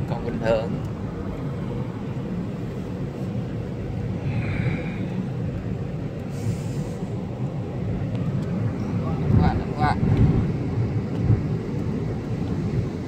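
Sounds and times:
car engine and tyre rumble: 0:00.0 - 0:13.0
short hiss: 0:06.3 - 0:07.1.

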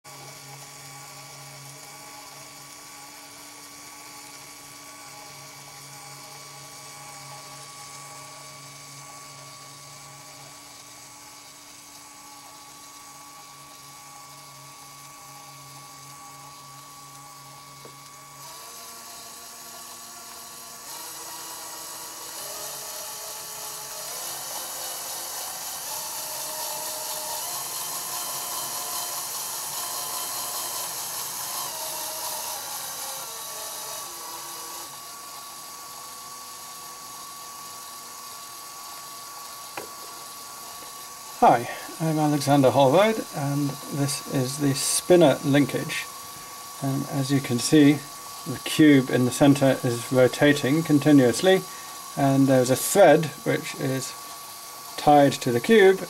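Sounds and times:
electric motor and gears whirring: 0:00.0 - 0:56.0.

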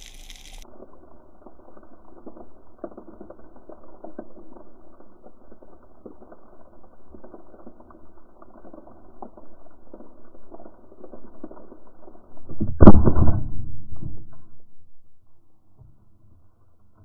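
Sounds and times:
muffled underwater clicks and knocks: 0:12.4 - 0:15.0.

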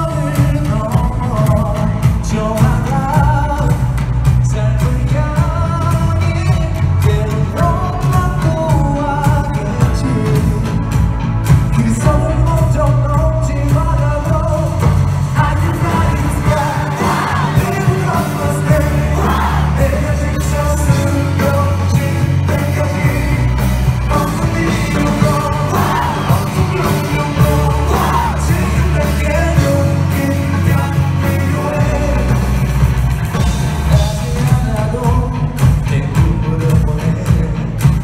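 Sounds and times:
live pop-rock band: 0:00.0 - 0:38.0
person singing: 0:00.0 - 0:38.0.

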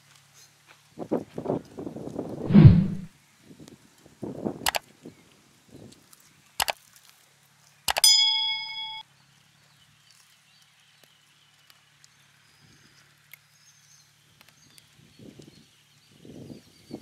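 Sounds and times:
clicks: 0:07.9 - 0:09.0
bright bell ding: 0:08.0 - 0:09.0.

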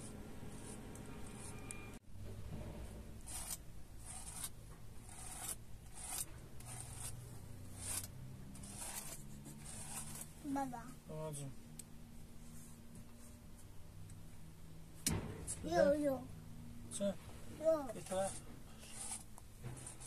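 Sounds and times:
rhythmic rubbing strokes: 0:03.2 - 0:10.7, 0:17.8 - 0:20.0.

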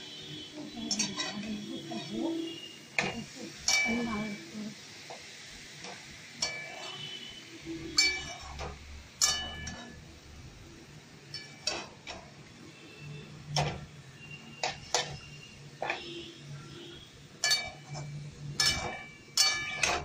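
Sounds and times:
metal spoon scraping metal pan: 0:00.6 - 0:04.4, 0:05.8 - 0:10.1, 0:11.3 - 0:12.3, 0:14.6 - 0:16.3, 0:17.4 - 0:20.0.

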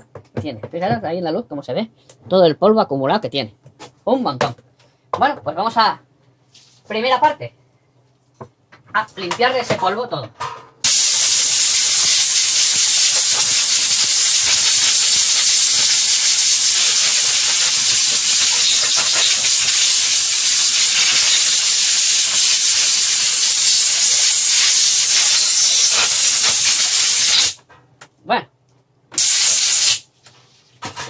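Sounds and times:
compressed air blow gun hissing: 0:10.8 - 0:27.6, 0:29.2 - 0:30.1.

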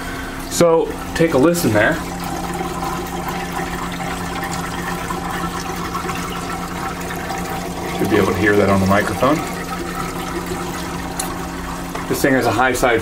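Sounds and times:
refrigerator low hum: 0:00.0 - 0:13.0.

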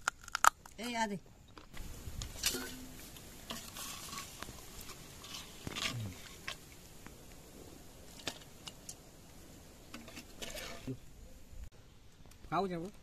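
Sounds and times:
metal utensil scraping pot and plate: 0:02.4 - 0:06.6, 0:09.9 - 0:11.0.

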